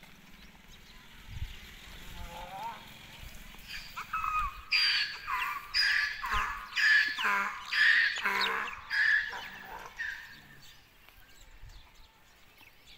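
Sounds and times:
donkey braying: 3.6s - 10.7s.

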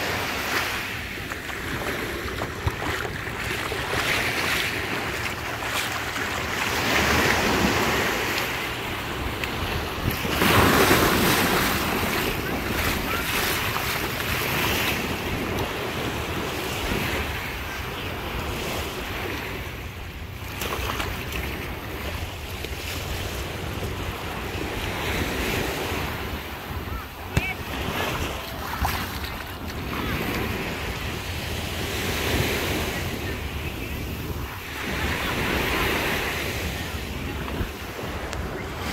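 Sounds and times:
wind buffeting microphone: 0.0s - 20.0s
small waves washing on sand: 0.0s - 38.9s.

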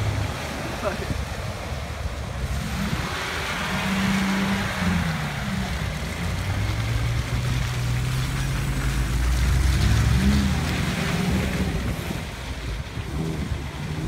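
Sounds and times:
off-road engines revving: 0.0s - 14.0s
water splashing: 0.0s - 14.0s
wind: 0.0s - 14.0s.

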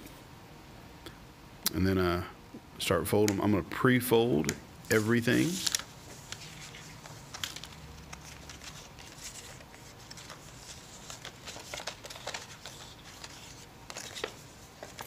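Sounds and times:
stiff paper crinkling and snapping: 5.4s - 15.0s.

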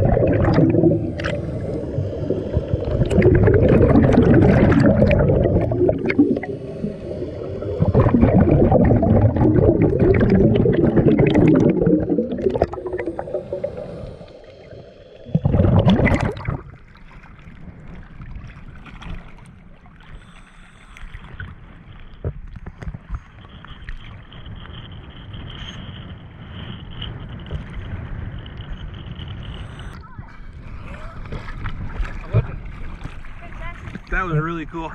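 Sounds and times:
underwater regulator bubbles: 0.0s - 19.3s
waves sloshing and lapping: 0.0s - 34.9s
loud splash: 2.3s - 14.0s, 15.2s - 16.8s.

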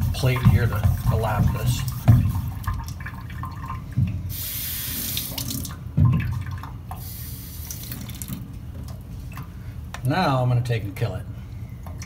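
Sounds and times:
water running from a tap: 0.2s - 8.4s.

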